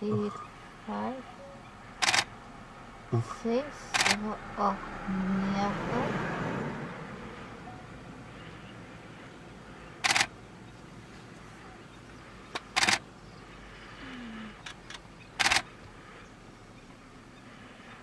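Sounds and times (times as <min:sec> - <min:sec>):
camera shutter bursts: 0:02.0 - 0:02.3, 0:03.9 - 0:04.2, 0:10.0 - 0:10.3, 0:12.8 - 0:13.0, 0:15.4 - 0:15.6.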